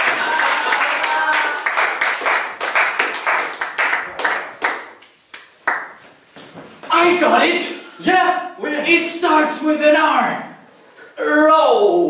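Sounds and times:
group clapping in rhythm: 0:00.0 - 0:06.1.

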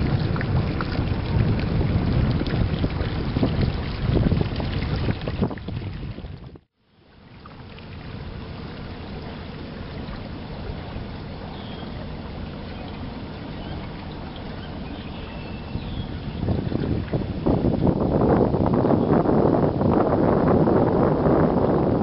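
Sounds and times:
boat rumble and hiss: 0:00.0 - 0:06.2, 0:06.8 - 0:22.0
faint high chirp: 0:11.5 - 0:12.0, 0:14.5 - 0:16.3.

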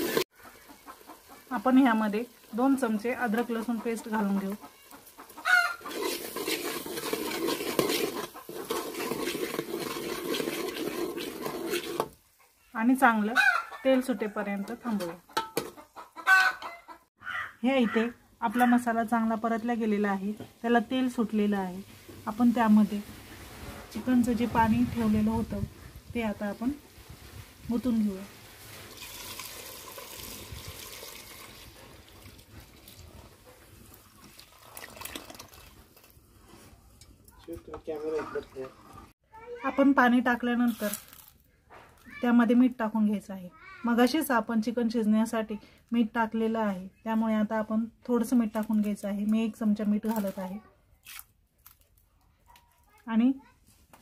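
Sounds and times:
steel spoon scraping a pot: 0:00.0 - 0:00.2, 0:05.3 - 0:12.2
paste frying in oil: 0:00.0 - 0:13.1, 0:18.5 - 0:36.5
liquid pouring into a pot: 0:05.8 - 0:12.2, 0:28.6 - 0:36.2.

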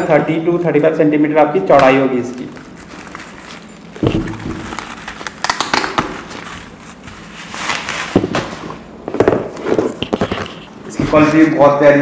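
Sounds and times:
bubble wrap rustling and crackling: 0:02.4 - 0:08.7.

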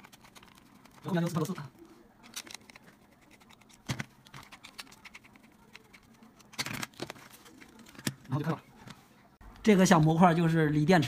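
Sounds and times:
plastic clatter: 0:02.2 - 0:09.0.

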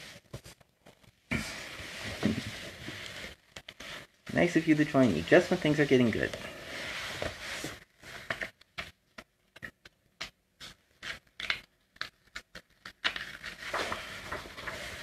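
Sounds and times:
book handled scraping and tapping: 0:00.0 - 0:04.0
page rustling: 0:00.0 - 0:15.0.

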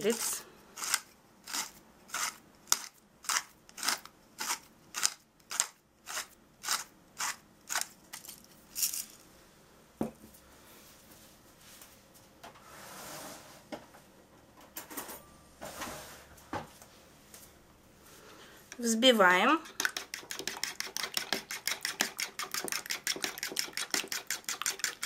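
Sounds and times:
pepper mill grinding: 0:19.6 - 0:25.0.

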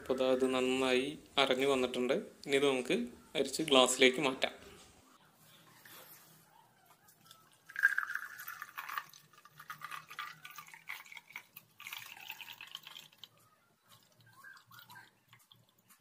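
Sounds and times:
juice pouring into a glass: 0:07.3 - 0:15.8.

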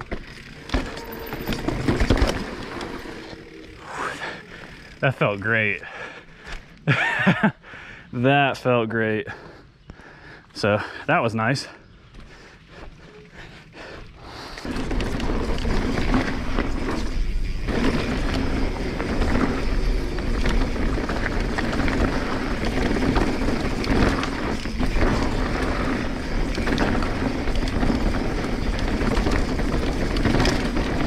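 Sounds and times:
bike knocks and rattles: 0:00.0 - 0:03.4, 0:14.6 - 0:31.0
mountain bike trail noise: 0:00.0 - 0:31.0.

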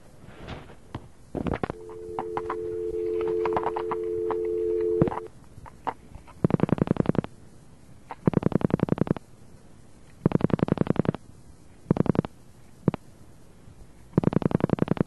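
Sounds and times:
dial tone: 0:01.7 - 0:05.3
telephone line clicks: 0:01.7 - 0:05.3.

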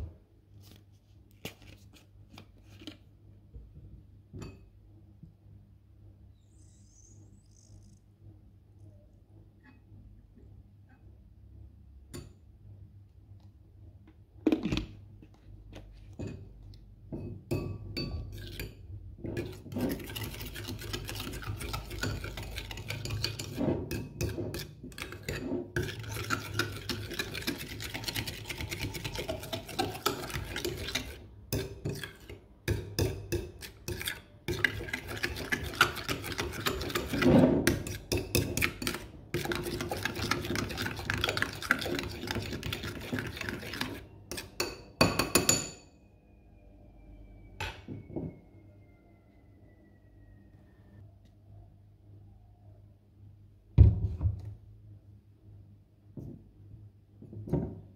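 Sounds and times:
metal spoon scraping glass bowl: 0:18.0 - 0:45.9
spoon clinking against glass: 0:44.3 - 0:45.9.

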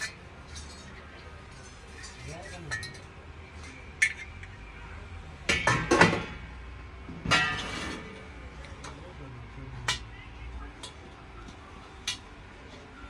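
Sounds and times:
brass vessels clinking and knocking: 0:00.0 - 0:04.6, 0:07.2 - 0:08.2.

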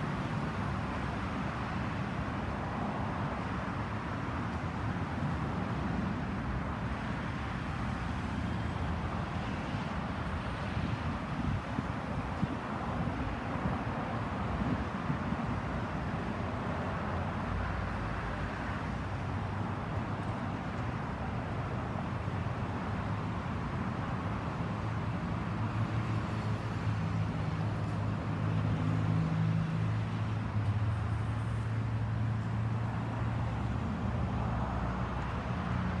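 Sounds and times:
road traffic: 0:00.0 - 0:36.0
vehicle engine hum: 0:00.0 - 0:36.0.

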